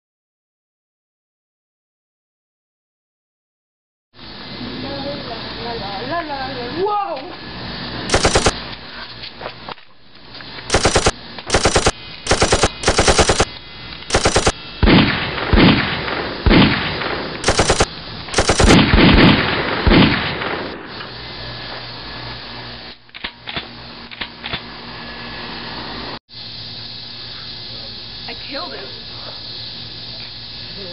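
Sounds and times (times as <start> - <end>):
automatic gunfire: 8.1 - 8.6, 10.7 - 13.5, 14.1 - 20.8.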